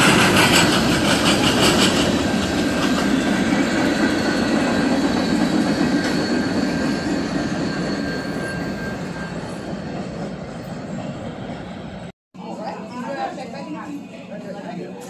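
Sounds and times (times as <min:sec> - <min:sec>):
freight train cars rolling: 0:00.0 - 0:12.1
thin wheel squeal: 0:04.0 - 0:10.8.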